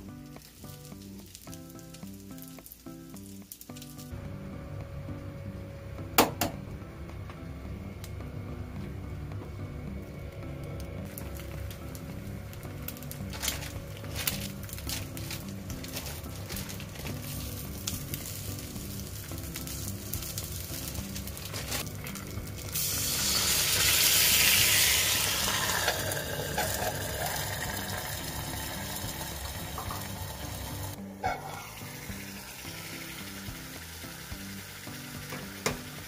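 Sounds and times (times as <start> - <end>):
eggs and sausages sizzling: 0.0 - 4.2, 11.0 - 36.0
water hissing in hot pan: 14.4 - 36.0.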